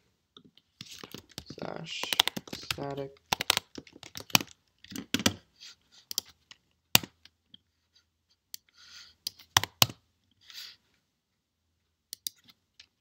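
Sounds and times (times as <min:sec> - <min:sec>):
keyboard keystrokes: 0:01.1 - 0:04.5.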